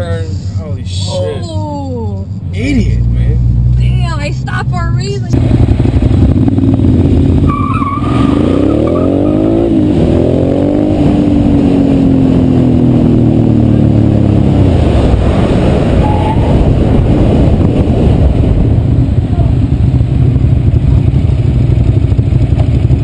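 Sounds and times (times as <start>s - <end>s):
motorcycle engine accelerating: 2.8s - 23.0s
wind rush: 9.7s - 23.0s.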